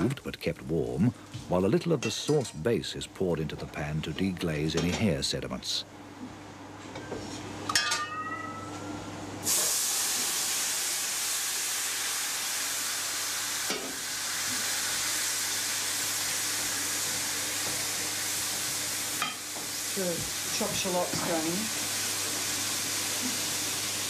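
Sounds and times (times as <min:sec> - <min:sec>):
liquid sizzling in hot pan: 0:09.4 - 0:24.0.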